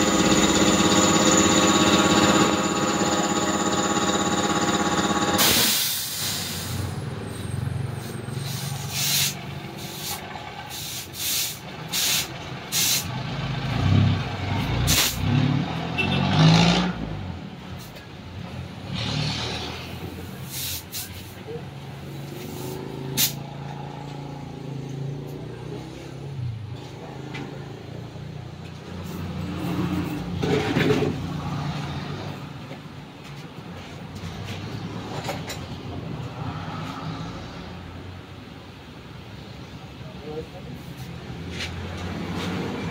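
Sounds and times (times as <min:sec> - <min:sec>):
passing road traffic: 0:00.0 - 0:42.9
compressed air hissing from hose: 0:05.4 - 0:06.9, 0:08.0 - 0:13.1, 0:20.4 - 0:21.3, 0:22.4 - 0:23.4.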